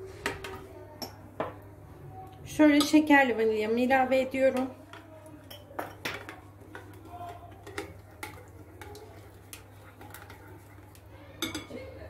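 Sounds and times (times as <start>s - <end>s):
spoon stirring batter in glass bowl: 4.4s - 12.0s.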